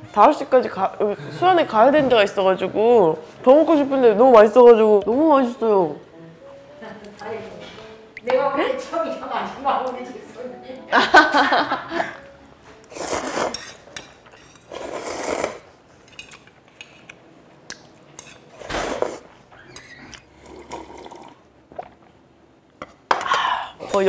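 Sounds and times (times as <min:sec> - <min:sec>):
slurping soup: 0:12.8 - 0:13.8, 0:14.6 - 0:15.7, 0:18.5 - 0:22.1.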